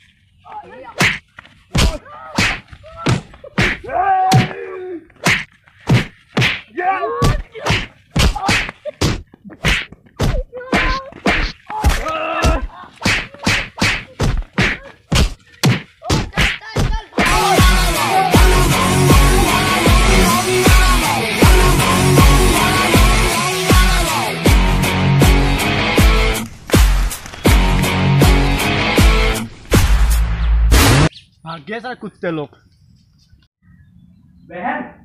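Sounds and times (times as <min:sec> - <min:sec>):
slap and punch hits: 0:01.0 - 0:04.6, 0:05.2 - 0:17.4.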